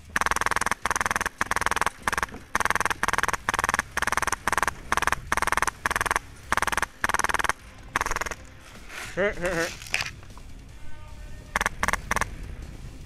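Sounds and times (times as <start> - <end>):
airsoft gun full-auto bursts: 0.0 - 8.4, 11.6 - 12.3.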